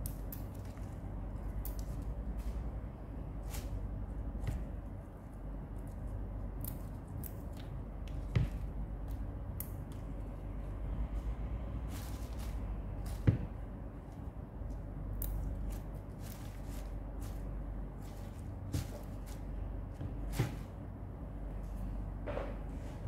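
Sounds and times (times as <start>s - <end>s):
steady low hum: 0.0s - 23.0s
leaves rustling: 3.4s - 3.9s, 11.2s - 14.8s, 15.4s - 20.8s.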